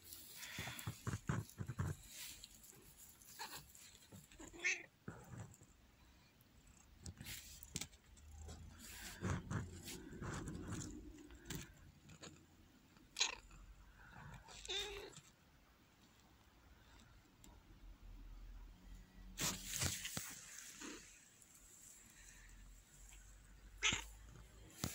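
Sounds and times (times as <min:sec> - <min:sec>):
dry straw rustling: 0:00.0 - 0:04.4.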